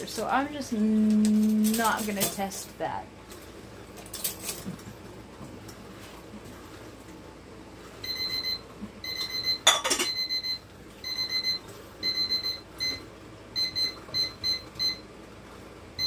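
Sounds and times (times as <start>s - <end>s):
kitchen timer beeping: 8.0s - 15.1s.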